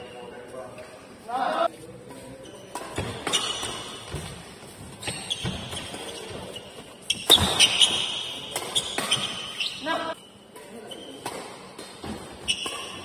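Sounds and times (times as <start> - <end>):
shoe squeaks: 2.2 - 11.2, 12.4 - 13.0
rackets hitting shuttlecock: 7.1 - 9.6, 10.6 - 13.0.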